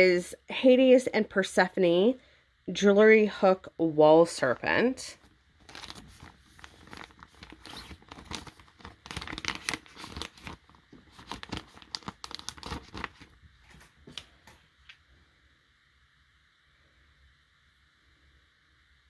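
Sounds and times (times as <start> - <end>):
plastic pouch crinkling: 5.2 - 14.4.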